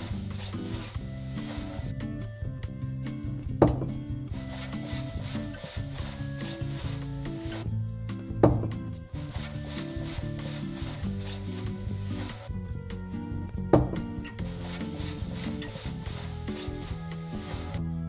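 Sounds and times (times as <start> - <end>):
sanding wood by hand: 0.0 - 1.9, 4.3 - 7.6, 9.1 - 12.5, 14.4 - 17.8
light background music: 0.0 - 18.0
sharp tap: 3.6 - 4.0.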